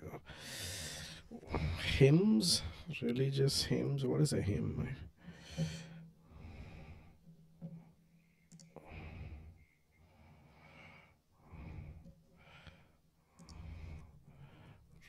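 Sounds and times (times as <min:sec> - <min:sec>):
man breathing softly: 0:00.2 - 0:02.0, 0:05.2 - 0:15.0
faint clicks: 0:08.5 - 0:08.9, 0:13.4 - 0:13.7.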